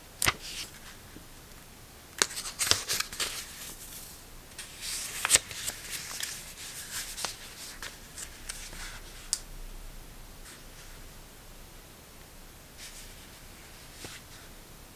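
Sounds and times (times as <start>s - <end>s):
paper pages flicked and snapping: 0.2s - 0.9s, 4.6s - 9.4s.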